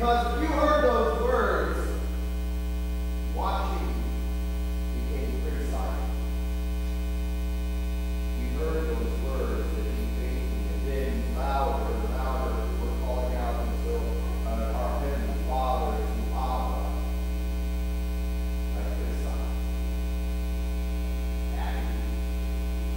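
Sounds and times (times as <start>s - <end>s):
man speaking: 0.0s - 2.1s, 3.3s - 4.2s, 4.9s - 6.3s, 8.4s - 17.1s, 18.7s - 19.6s, 21.5s - 22.1s
electrical mains hum: 0.0s - 22.9s.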